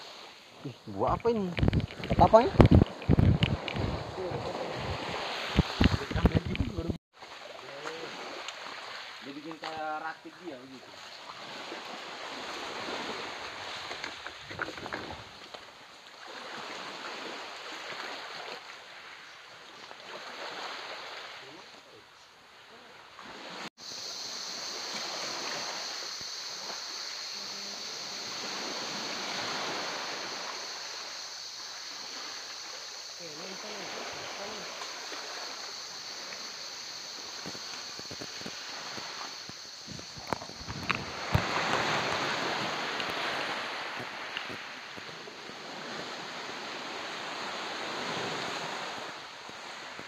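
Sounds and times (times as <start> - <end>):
small waves lapping: 0.0 - 50.0
wind on microphone: 0.6 - 7.0, 36.7 - 50.0.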